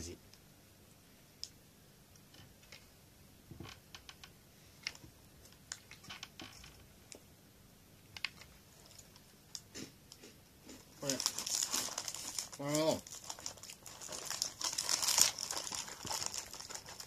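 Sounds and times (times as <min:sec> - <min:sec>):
biscuits being chewed: 0:08.2 - 0:12.5
paper box rustling: 0:11.0 - 0:17.0.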